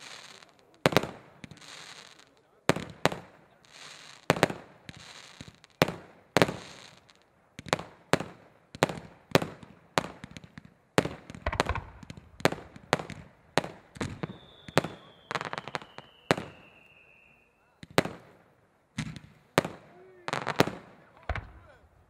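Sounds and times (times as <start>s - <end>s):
fireworks banging: 0.0s - 17.0s, 19.0s - 22.0s
firework whistling tone: 11.5s - 17.8s.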